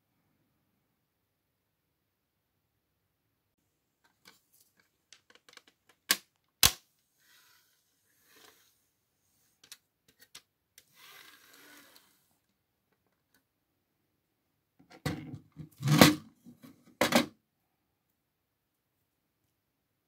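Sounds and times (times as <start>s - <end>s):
plastic knocks and clatter: 14.8s - 17.3s.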